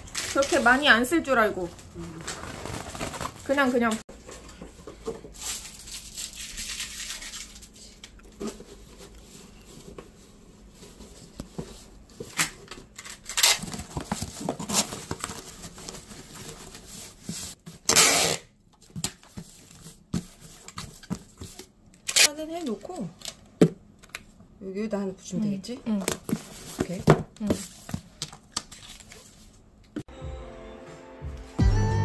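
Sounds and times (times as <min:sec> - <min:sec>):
cardboard boxes scraping and rustling: 0:02.2 - 0:03.7
loud tape rip: 0:17.9 - 0:18.5.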